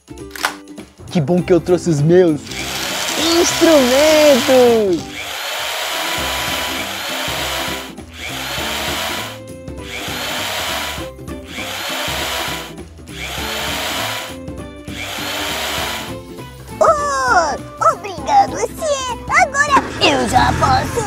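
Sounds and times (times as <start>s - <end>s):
light background music: 0.0s - 21.0s
toy power drill whirring: 2.4s - 16.2s.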